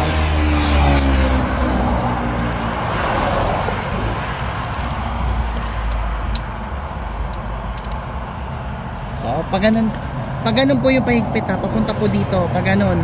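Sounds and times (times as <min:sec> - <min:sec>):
vehicle passing rumble: 0:00.0 - 0:09.2.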